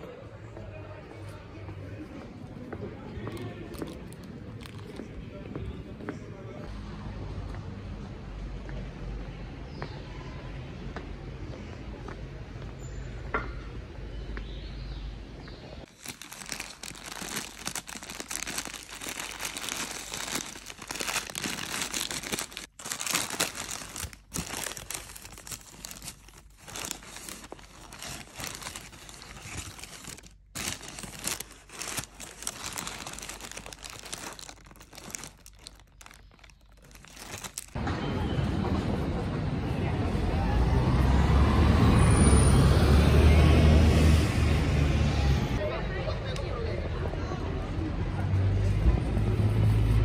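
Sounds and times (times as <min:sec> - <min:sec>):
crackly crinkling and rustling: 0:03.0 - 0:05.4, 0:15.8 - 0:37.8.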